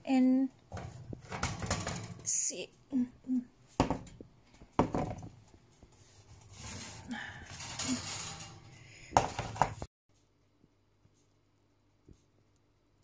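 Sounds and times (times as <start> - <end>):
metal pan scraping on wire rack: 0.7 - 2.4, 6.1 - 9.8.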